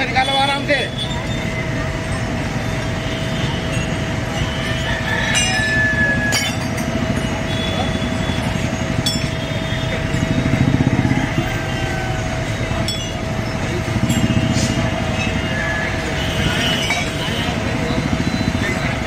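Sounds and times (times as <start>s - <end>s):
constant high tone: 0.0s - 19.0s
diesel engine running: 0.0s - 19.0s
metallic clinks: 3.6s - 7.4s, 8.1s - 10.4s, 12.7s - 15.7s.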